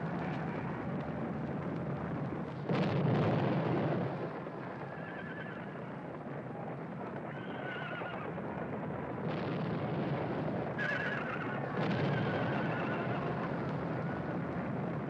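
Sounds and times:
continuous noisy rumble: 0:00.0 - 0:15.0
horses whinnying: 0:04.8 - 0:05.9, 0:07.3 - 0:08.4, 0:10.8 - 0:13.7.

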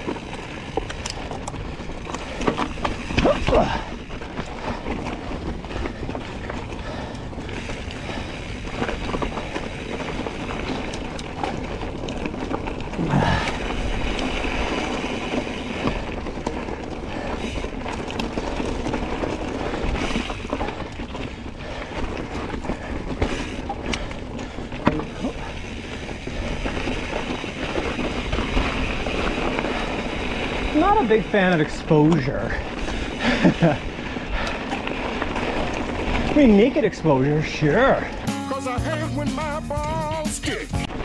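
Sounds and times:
bike knocking and clattering: 0:00.0 - 0:33.8
tyres rumbling on rock: 0:00.0 - 0:38.0.

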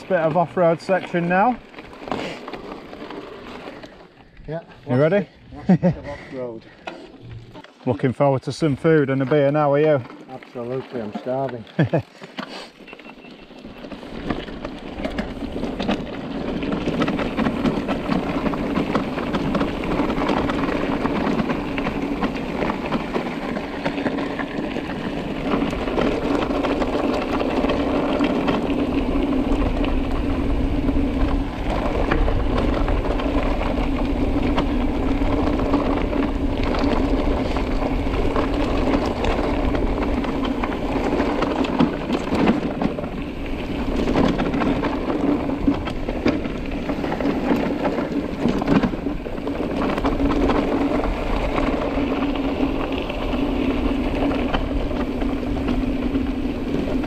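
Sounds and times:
bike rattling: 0:00.0 - 0:57.0
bike tyres on rough trail: 0:00.0 - 0:57.0
wind rumbling on microphone: 0:13.5 - 0:57.0.

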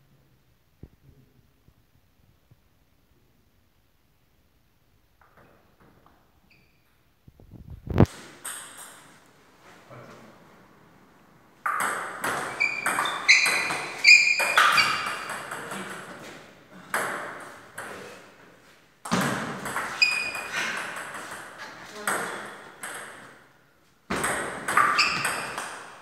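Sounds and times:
table tennis ball clicking and bouncing: 0:11.6 - 0:16.2, 0:19.0 - 0:23.4, 0:24.1 - 0:26.0.

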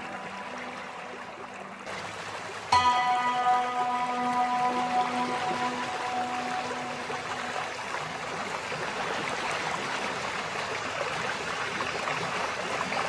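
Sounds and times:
waterfall rushing: 0:00.0 - 0:10.6.

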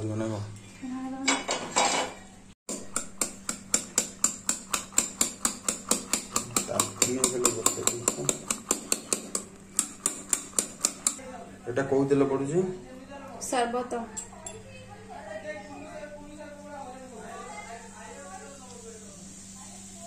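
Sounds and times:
whisk clicking against metal: 0:02.9 - 0:11.3.

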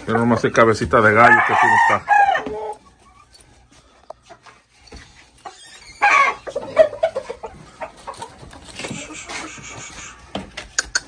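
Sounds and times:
chickens calling and clucking: 0:00.0 - 0:11.0.

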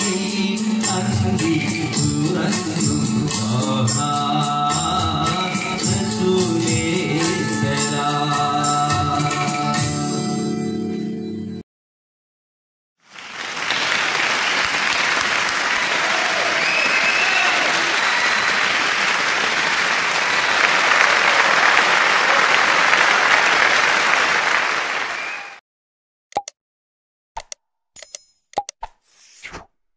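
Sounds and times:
large crowd applause: 0:13.0 - 0:25.6.

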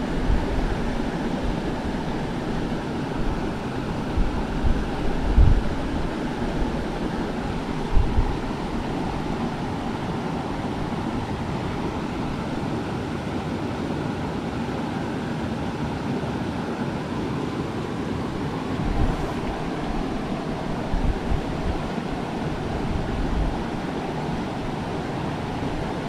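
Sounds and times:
wind gust buffeting microphone: 0:00.0 - 0:12.7, 0:18.3 - 0:26.0
river rushing over boulders: 0:00.0 - 0:26.0.

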